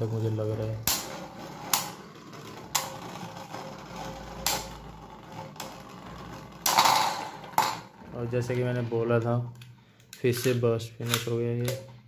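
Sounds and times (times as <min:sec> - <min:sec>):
spinning tops whirring: 0:00.0 - 0:08.0
spinning tops clacking together: 0:00.8 - 0:08.0.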